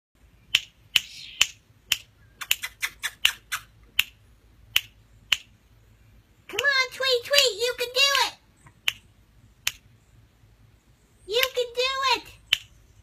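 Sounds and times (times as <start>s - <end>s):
sharp short clicks: 0.5s - 5.6s, 8.6s - 9.9s, 12.4s - 12.8s.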